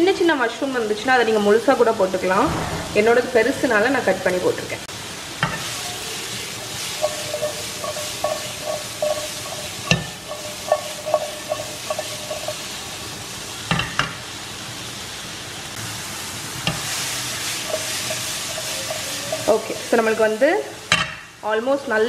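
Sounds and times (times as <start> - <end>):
food sizzling in frying pan: 0.0 - 22.0
pan scraping on hob grate: 6.8 - 12.9
pan knocking on grate: 7.0 - 12.6, 13.7 - 14.2.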